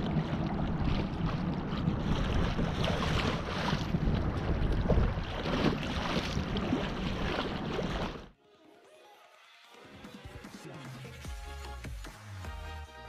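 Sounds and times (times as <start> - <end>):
wind buffeting microphone: 0.0 - 8.1
water lapping against a hull: 0.0 - 8.4.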